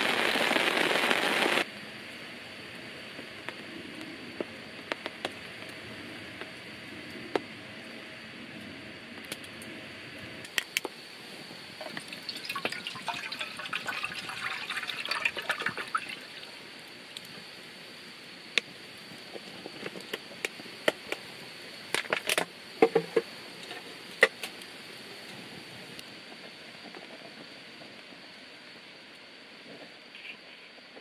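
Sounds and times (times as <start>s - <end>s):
water pouring into metal tin: 11.8s - 16.6s.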